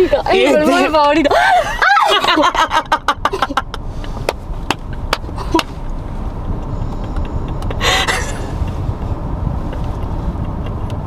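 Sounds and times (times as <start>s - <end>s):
woman laughing: 0.0s - 3.8s
steady low rumble: 0.0s - 11.0s.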